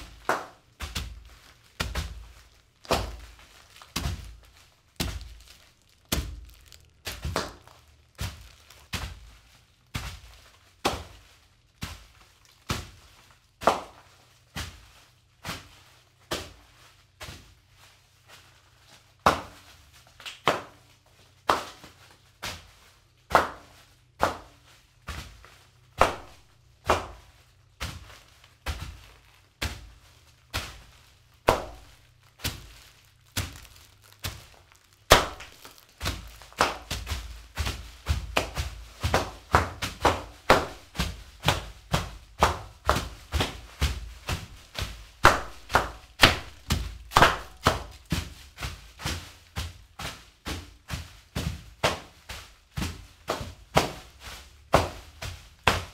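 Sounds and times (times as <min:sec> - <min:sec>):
heavy footstep thuds: 0:00.0 - 0:11.2, 0:25.1 - 0:55.9
bare feet crunching foil-wrapped cookies: 0:00.0 - 0:55.9.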